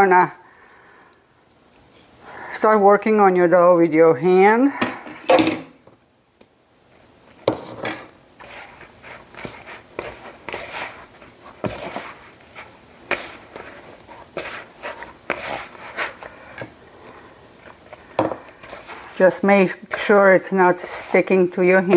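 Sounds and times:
hand kneading sticky dough: 8.4 - 21.9.

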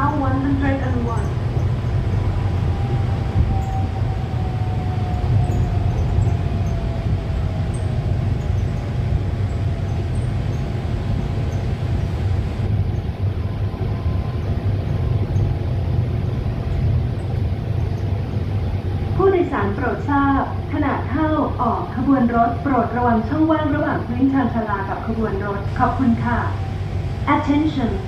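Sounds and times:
monorail train rumble with whine: 0.0 - 28.0.

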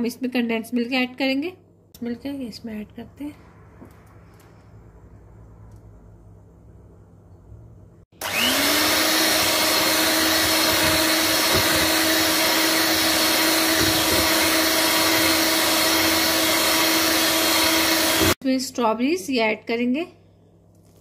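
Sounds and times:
electric hand mixer whirring: 8.2 - 18.4.

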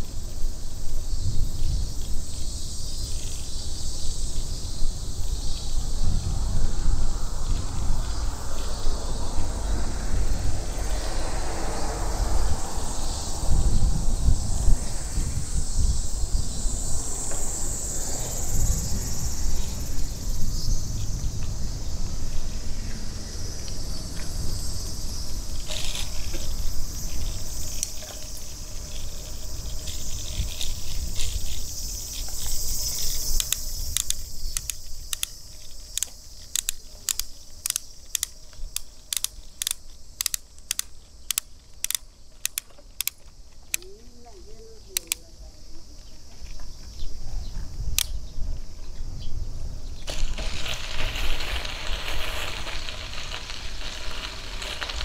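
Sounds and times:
cicadas buzzing: 0.0 - 55.0
low wind: 0.0 - 55.0
sharp evenly spaced clicks: 33.4 - 43.9, 45.0 - 45.2.

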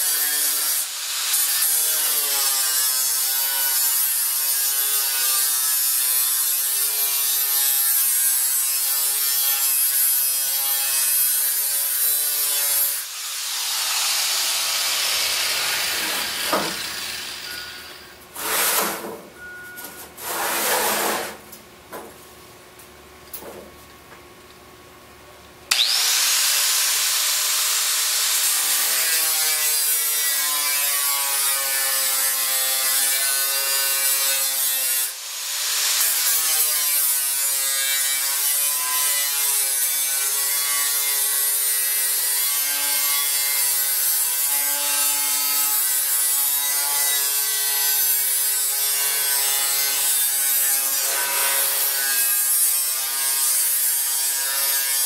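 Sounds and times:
angle grinder cutting steel: 0.0 - 18.8, 25.7 - 55.0.

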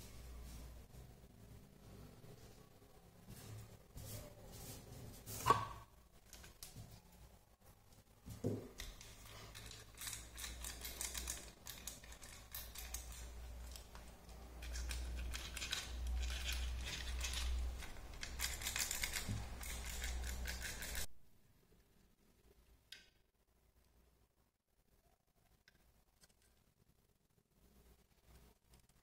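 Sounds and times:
plastic toy car clicking and rattling: 8.8 - 21.1.

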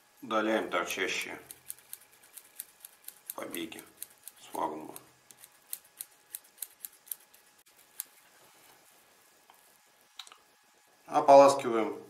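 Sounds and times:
small scissors snipping: 1.4 - 7.3.

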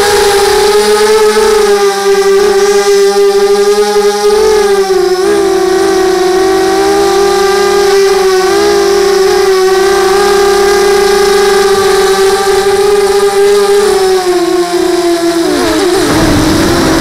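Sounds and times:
drone propellers whining: 0.0 - 17.0.

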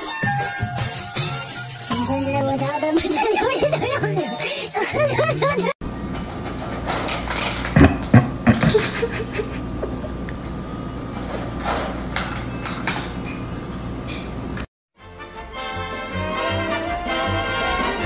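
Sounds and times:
cat crunching dry kibble: 6.9 - 8.2.

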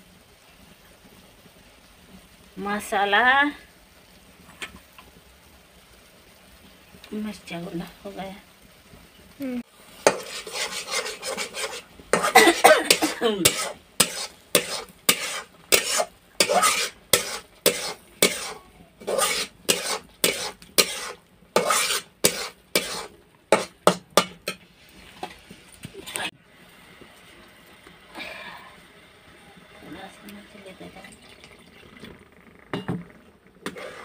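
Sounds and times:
paste frying: 0.0 - 34.0
metal spatula scraping pan: 10.0 - 24.6, 33.6 - 34.0.

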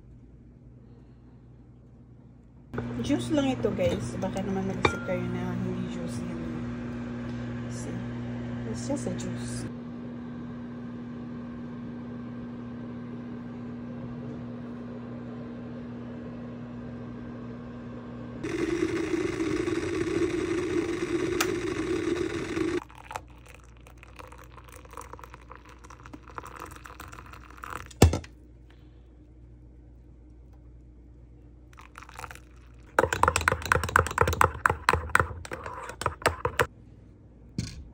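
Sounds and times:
steady low hum: 0.0 - 37.9
electric kettle boiling: 18.4 - 28.2, 31.8 - 36.7.

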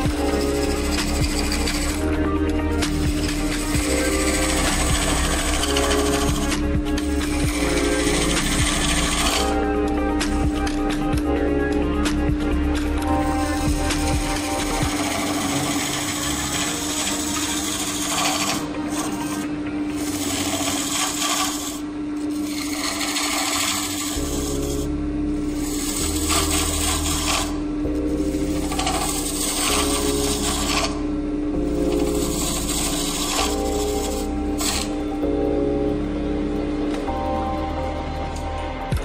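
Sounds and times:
tool scraping spinning wood: 0.0 - 35.3
lathe humming: 0.0 - 39.0.

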